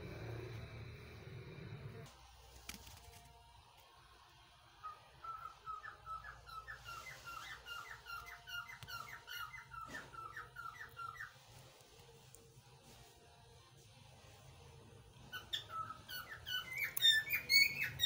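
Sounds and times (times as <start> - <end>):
parakeet calling: 4.8 - 11.4, 15.3 - 18.0.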